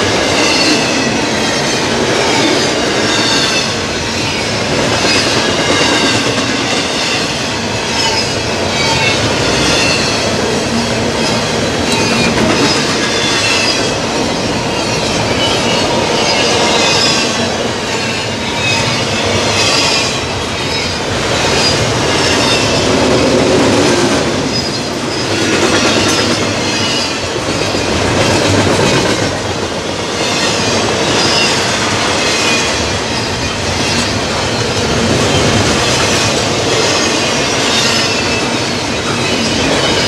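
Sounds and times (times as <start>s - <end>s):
steel wheels on rails: 0.0s - 40.0s
high wheel squeal: 7.0s - 14.0s.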